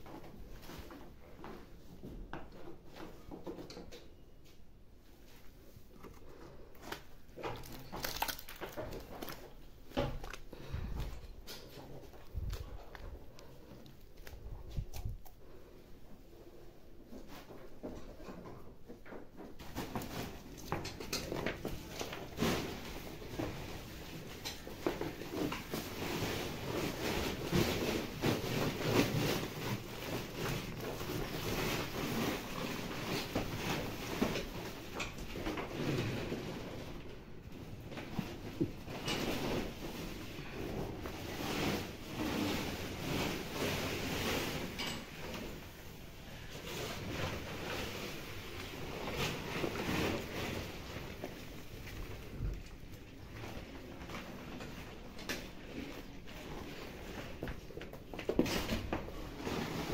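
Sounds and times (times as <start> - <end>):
rustling of sack and straw: 39.3 - 44.8, 45.4 - 52.4.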